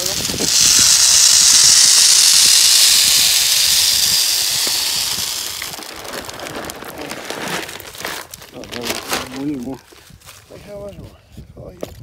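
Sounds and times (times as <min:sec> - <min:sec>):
loud steady hiss: 0:00.0 - 0:06.8.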